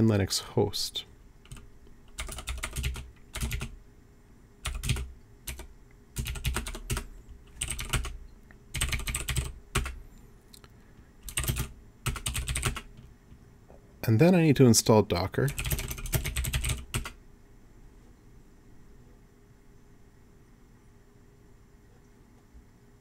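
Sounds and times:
typing on computer keyboard: 0:01.4 - 0:03.8, 0:04.6 - 0:10.0, 0:11.2 - 0:13.1, 0:15.5 - 0:17.2.

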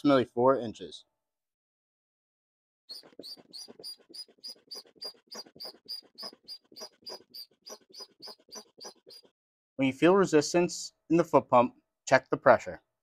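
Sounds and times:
foot pump puffing air: 0:03.0 - 0:09.3.

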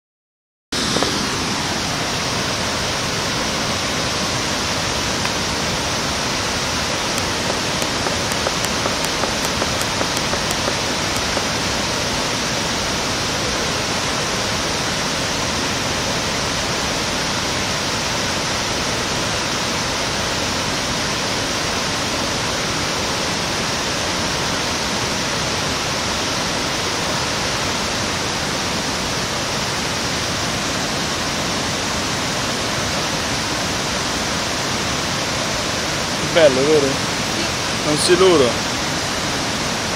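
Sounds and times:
rushing river water: 0:00.8 - 0:39.9
faint clicks: 0:07.2 - 0:11.4.

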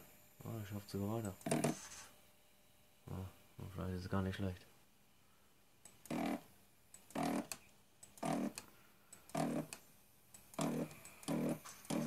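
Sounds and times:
stepper motor buzzing: 0:05.9 - 0:07.6, 0:08.2 - 0:08.6, 0:09.3 - 0:09.8, 0:10.5 - 0:12.0.

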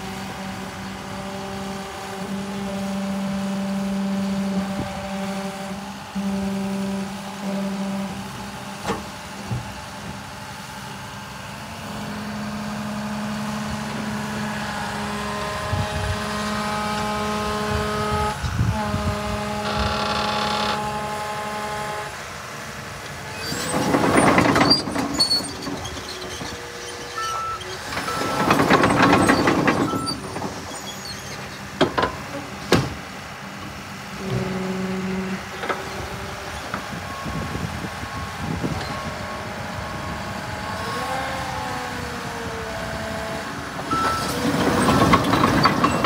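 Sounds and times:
bulldozer diesel engine: 0:00.0 - 0:46.0
backup alarm beeps: 0:43.9 - 0:44.4.

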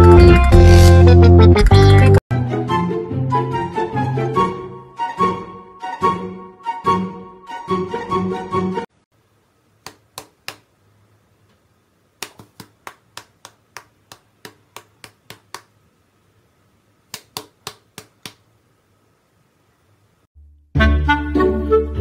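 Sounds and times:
background music: 0:00.0 - 0:08.9, 0:20.4 - 0:22.0
fingers snapping: 0:09.8 - 0:10.7, 0:12.2 - 0:15.8, 0:17.1 - 0:18.5.

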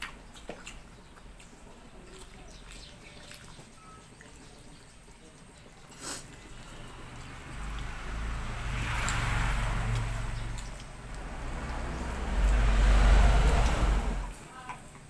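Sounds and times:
vehicles passing: 0:04.9 - 0:14.6
deep vehicle rumble: 0:06.2 - 0:14.4.

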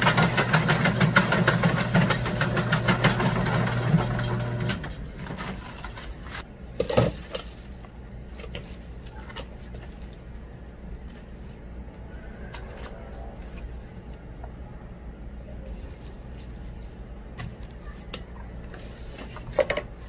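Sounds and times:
electric machine humming and rattling: 0:00.0 - 0:06.6
handling sounds: 0:04.8 - 0:14.6, 0:15.6 - 0:20.0.

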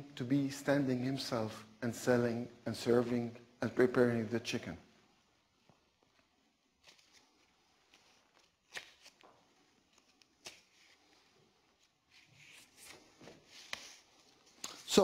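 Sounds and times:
soft rustle: 0:05.5 - 0:15.0.

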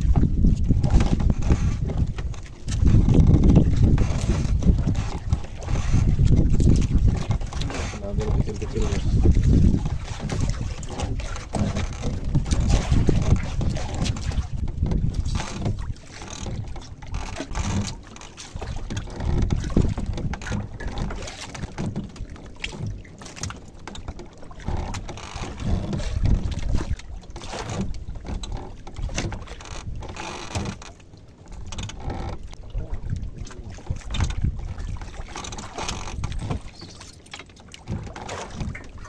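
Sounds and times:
wind buffeting microphone: 0:00.0 - 0:18.0, 0:18.6 - 0:23.0, 0:24.6 - 0:27.1, 0:32.4 - 0:36.8
water sloshing against boat hull: 0:00.0 - 0:39.0.

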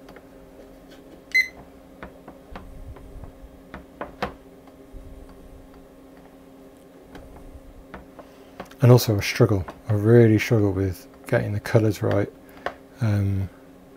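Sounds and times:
electrical hum: 0:00.0 - 0:13.9
short electronic beep: 0:01.3 - 0:01.6.

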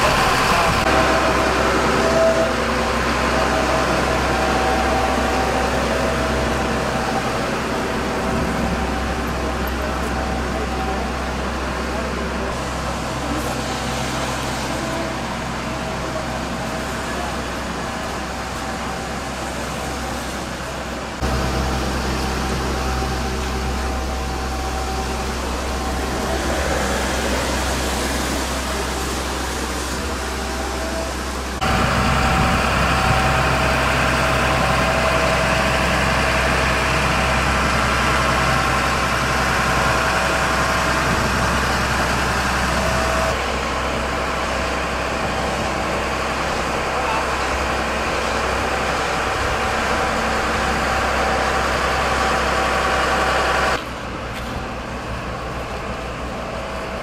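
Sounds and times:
diesel truck engine at low revs: 0:00.0 - 0:57.0.

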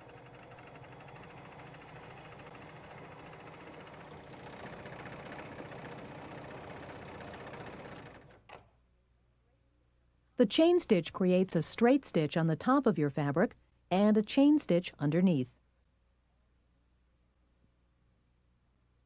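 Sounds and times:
serger sewing machine stitching: 0:00.0 - 0:08.7.

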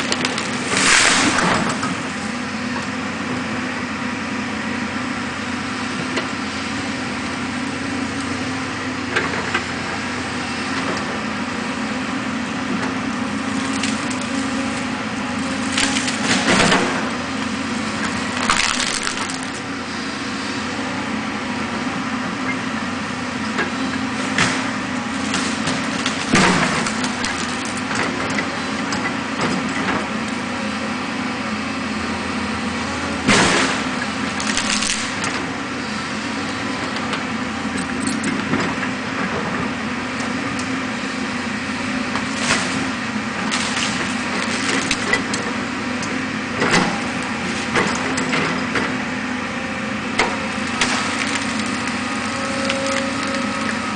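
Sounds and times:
wood and roots cracking: 0:00.0 - 0:02.0, 0:12.8 - 0:19.8, 0:24.2 - 0:29.1, 0:33.3 - 0:35.5, 0:42.1 - 0:48.6, 0:50.2 - 0:53.9
distant excavator diesel engine: 0:00.0 - 0:53.9.

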